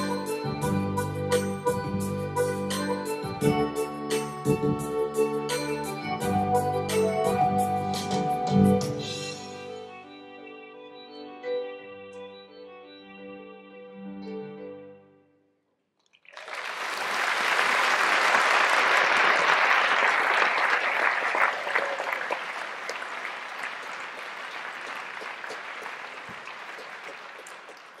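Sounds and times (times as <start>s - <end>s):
audience applauding: 16.1s - 28.0s.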